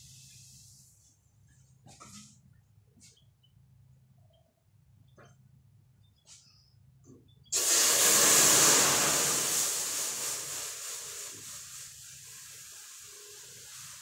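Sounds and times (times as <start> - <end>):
cola fizzing: 7.5 - 14.0.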